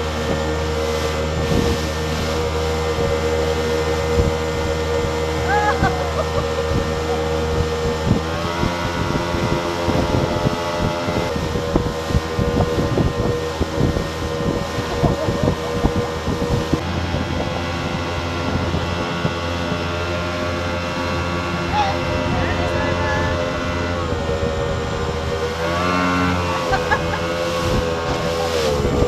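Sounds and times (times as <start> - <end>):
outboard motor running: 0.0 - 29.0
water rushing past hull: 0.0 - 29.0
wind buffeting microphone: 0.0 - 29.0.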